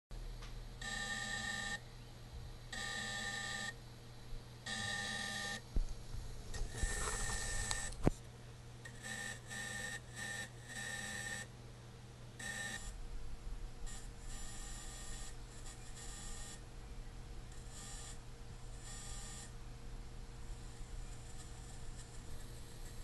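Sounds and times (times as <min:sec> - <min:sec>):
gimbal motors buzzing whine: 0:04.6 - 0:08.2, 0:13.8 - 0:19.6, 0:20.3 - 0:23.0.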